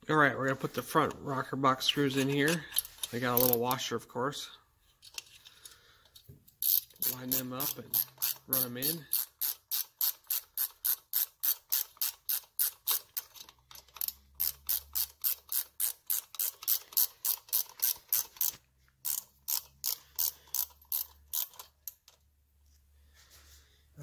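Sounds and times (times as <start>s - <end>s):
ratchet wrench clicking: 2.5s - 3.7s, 6.6s - 22.2s.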